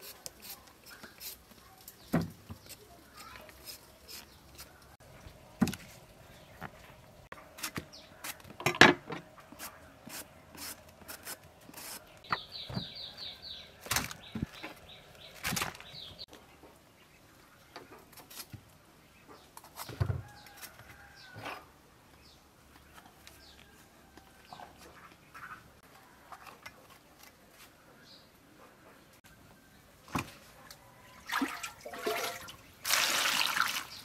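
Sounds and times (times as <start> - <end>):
knife scraping vegetables: 0.0 - 1.6, 9.5 - 12.3
bird chirping: 11.8 - 18.0.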